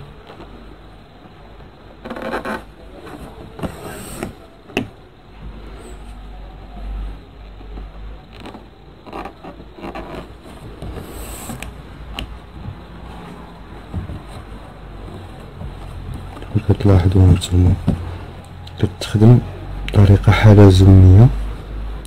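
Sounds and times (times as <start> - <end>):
cloth rustling: 2.0 - 4.9, 8.3 - 19.4.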